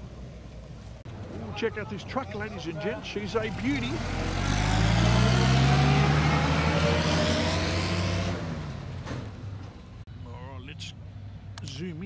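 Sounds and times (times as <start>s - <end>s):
vehicle engine accelerating past: 3.2s - 9.5s.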